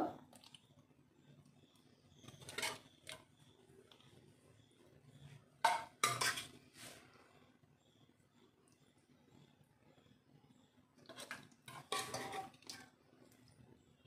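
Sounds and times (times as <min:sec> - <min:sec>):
metal spoon clinking on plate: 0:05.7 - 0:06.5.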